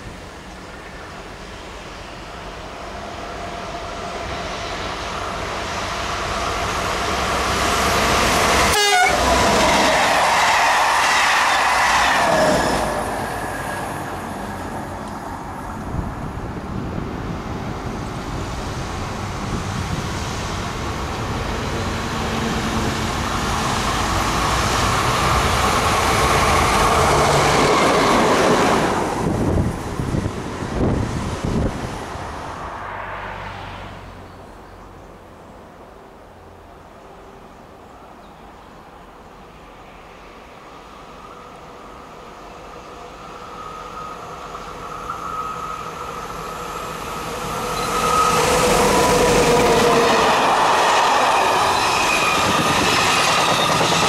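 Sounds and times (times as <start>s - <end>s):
diesel locomotive engines passing: 0.0s - 54.0s
electric train passing at speed: 0.0s - 54.0s
train horn falling in pitch: 8.6s - 9.3s.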